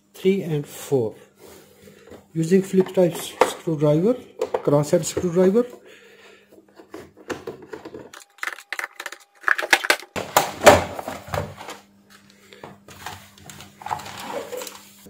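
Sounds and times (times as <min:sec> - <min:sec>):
plastic casing clatter: 0:08.1 - 0:10.2.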